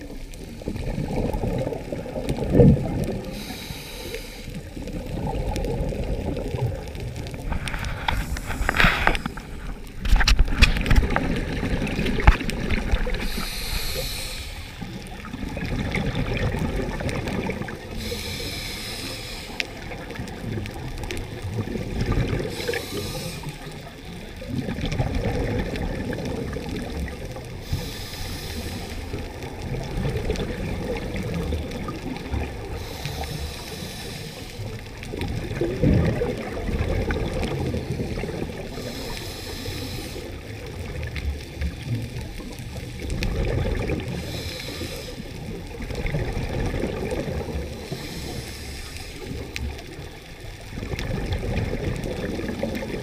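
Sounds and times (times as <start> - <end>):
exhaled air bubbling: 0.0 - 53.0
scuba regulator hiss: 3.3 - 4.6, 8.1 - 9.6, 13.2 - 15.0, 17.9 - 19.9, 22.5 - 23.8, 27.6 - 29.2, 32.7 - 34.8, 37.8 - 40.4, 44.2 - 45.4, 47.8 - 49.3.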